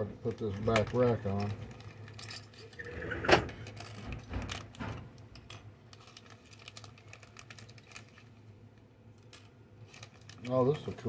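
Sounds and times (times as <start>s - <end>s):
plastic packaging crackle: 0.2s - 2.8s, 5.8s - 11.0s.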